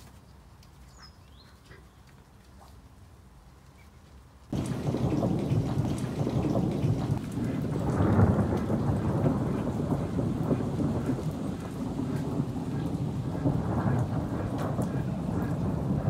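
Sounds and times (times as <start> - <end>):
heavy rain pouring: 4.5 - 16.0
thunder rumble: 4.5 - 16.0.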